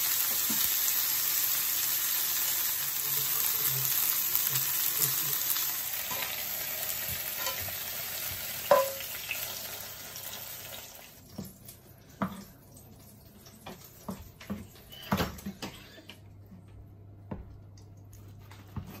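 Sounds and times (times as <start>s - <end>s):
chicken sizzling in hot oil: 0.0s - 11.2s.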